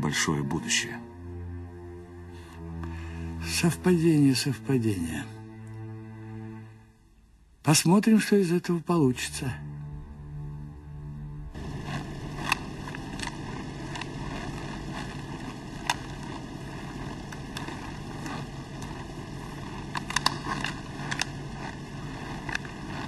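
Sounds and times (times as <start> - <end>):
steady low rumble: 0.0 - 23.0
clicks and knocks of handling: 19.7 - 21.5.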